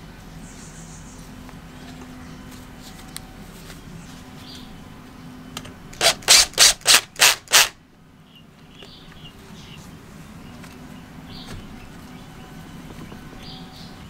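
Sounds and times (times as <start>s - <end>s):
powered screwdriver bursts: 6.0s - 7.8s.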